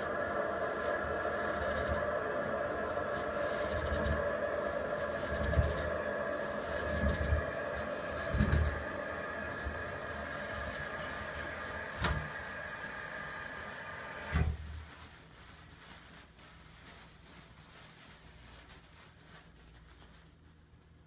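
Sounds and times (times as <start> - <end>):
toilet tank refilling: 0.9 - 14.5.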